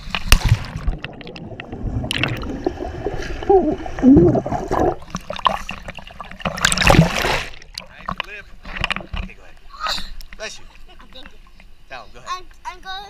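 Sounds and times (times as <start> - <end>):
underwater bubbles gurgling: 0.3 - 8.2.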